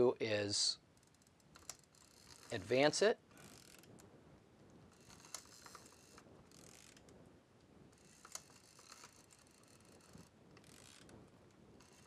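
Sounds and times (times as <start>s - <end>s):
film advance lever ratcheting: 1.0s - 2.8s, 3.4s - 4.1s, 4.9s - 7.1s, 8.0s - 11.2s, 11.8s - 12.0s.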